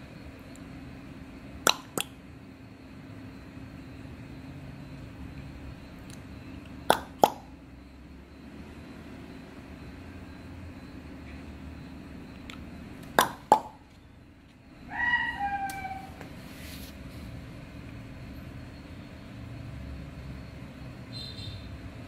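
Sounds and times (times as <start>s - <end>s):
rooster crowing: 14.8s - 16.3s.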